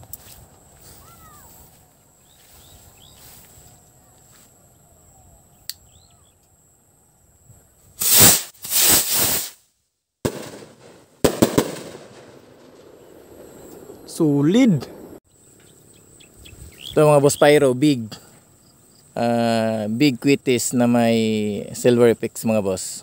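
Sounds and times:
bottle rocket launching hiss: 0:08.0 - 0:09.6
firework bang: 0:08.0 - 0:09.6, 0:10.2 - 0:14.2
firework cracks: 0:08.0 - 0:09.6, 0:10.2 - 0:15.2.

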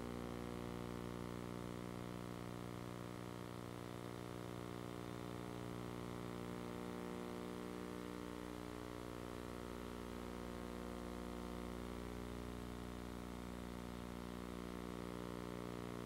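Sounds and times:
low buzzy electrical hum: 0:00.0 - 0:16.0.

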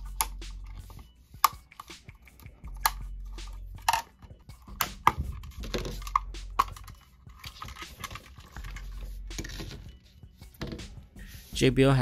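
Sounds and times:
rattling and handling noise: 0:00.0 - 0:11.2
plastic clips snapping: 0:03.8 - 0:08.4.

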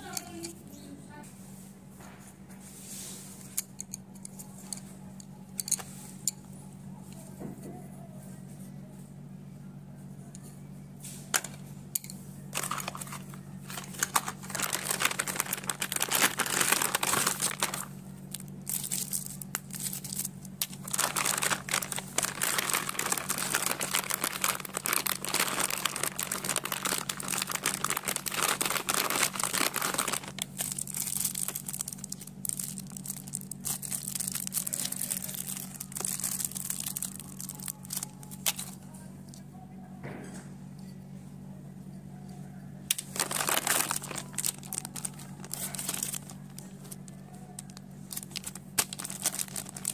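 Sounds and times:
steady low hum: 0:00.0 - 0:49.9
plastic packaging crinkling: 0:12.5 - 0:38.8, 0:42.9 - 0:49.9.

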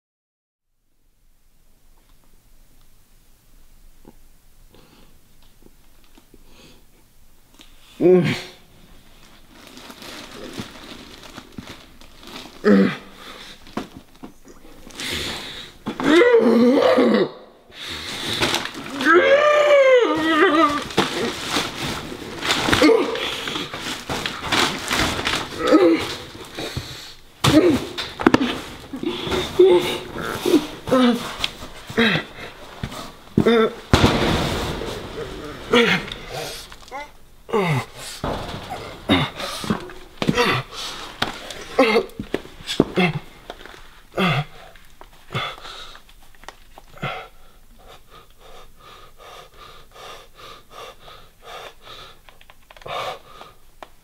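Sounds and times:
man muffled grunts: 0:08.0 - 0:08.6, 0:27.4 - 0:32.5, 0:33.4 - 0:33.9, 0:35.0 - 0:40.8
man's muffled groans and whimpers: 0:08.0 - 0:08.6, 0:12.6 - 0:13.2, 0:15.8 - 0:17.5, 0:18.9 - 0:43.3, 0:44.1 - 0:44.7
man breathing hard through nose: 0:14.8 - 0:15.9, 0:17.7 - 0:18.6, 0:26.5 - 0:27.3, 0:40.5 - 0:41.6, 0:44.4 - 0:46.2, 0:47.0 - 0:53.8.

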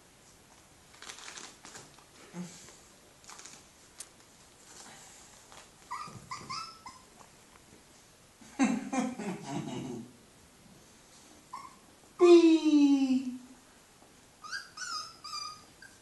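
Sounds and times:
puppies whimpering: 0:05.9 - 0:07.1, 0:14.4 - 0:16.0.

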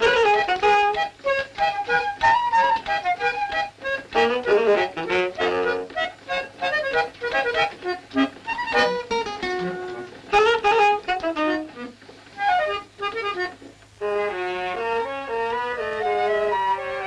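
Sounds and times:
plucked string notes: 0:00.0 - 0:12.0
sustained orchestral melody: 0:14.0 - 0:17.0.

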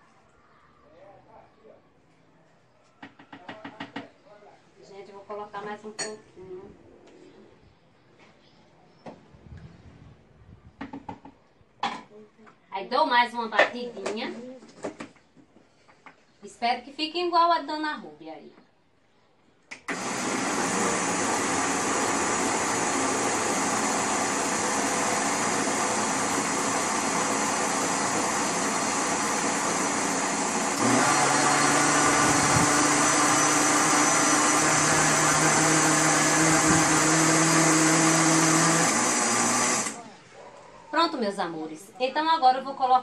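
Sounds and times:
blender whirring: 0:19.8 - 0:40.0.

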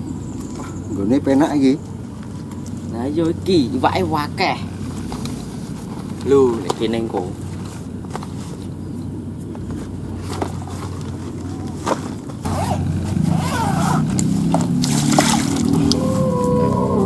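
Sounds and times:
bag scraping and handling: 0:04.8 - 0:15.6
zipper of bag opening: 0:12.4 - 0:15.9.

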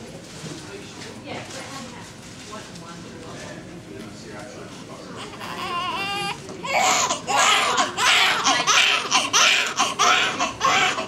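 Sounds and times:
baby crying: 0:05.2 - 0:11.0.

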